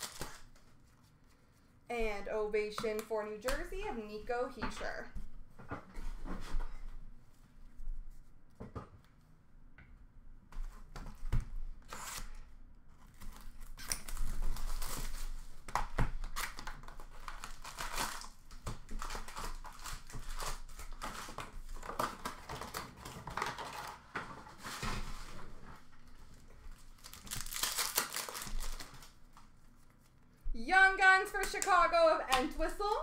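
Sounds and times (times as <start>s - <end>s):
cardboard tearing: 0.0s - 0.6s, 11.8s - 12.4s, 13.0s - 25.3s, 26.7s - 29.2s
foil wrappers crinkling: 0.0s - 0.8s, 13.2s - 24.6s, 26.0s - 30.2s.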